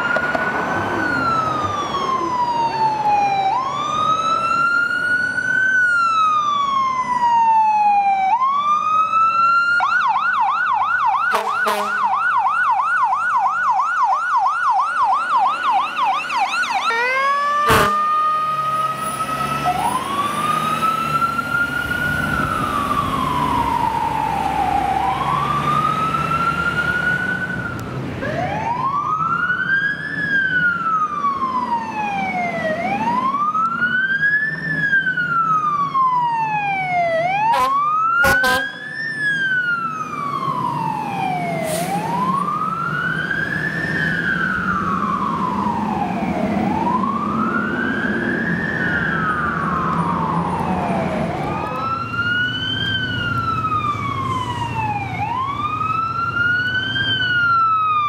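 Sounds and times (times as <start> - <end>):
fire engine siren wailing and yelping: 0.0 - 58.0
truck engine running low: 15.4 - 30.0.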